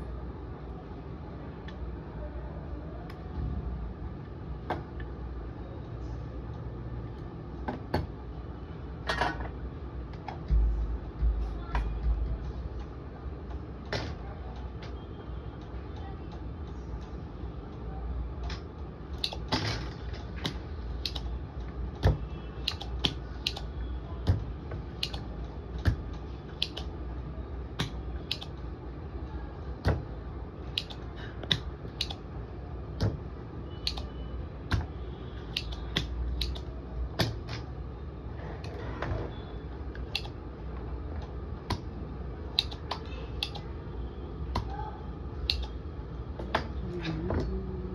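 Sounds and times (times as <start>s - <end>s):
low steady hum: 0.0s - 47.9s
desoldering pump clicks: 35.5s - 37.3s, 45.4s - 45.8s.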